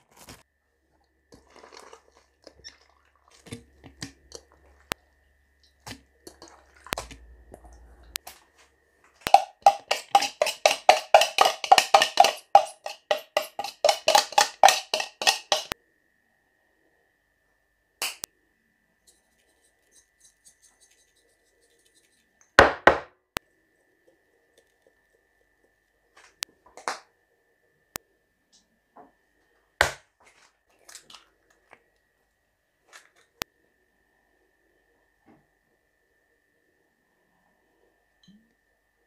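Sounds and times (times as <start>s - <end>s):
kitchen utensils and dishes clattering: 9.3s - 15.8s
faint steady high tone: 38.1s - 38.7s.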